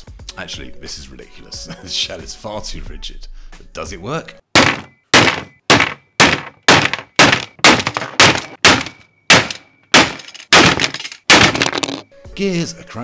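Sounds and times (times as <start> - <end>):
mallet striking phone case: 4.6 - 12.1.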